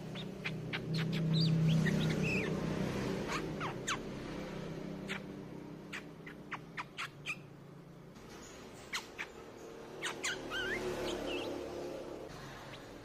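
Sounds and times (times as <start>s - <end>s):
bulbul calling: 0.0s - 2.6s, 8.4s - 11.7s.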